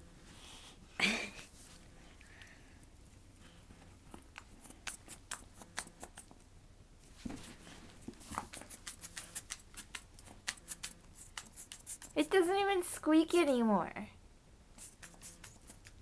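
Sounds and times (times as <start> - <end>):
dog teeth chewing fabric toy: 8.4 - 12.2.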